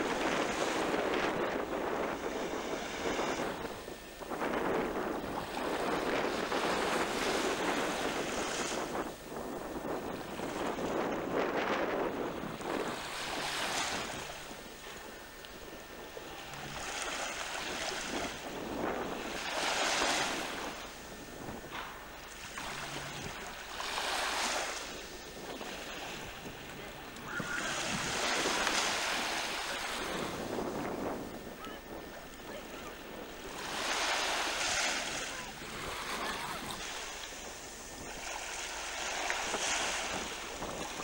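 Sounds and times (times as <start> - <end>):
sea water washing and surging: 0.0 - 41.0
wind on microphone: 0.0 - 41.0.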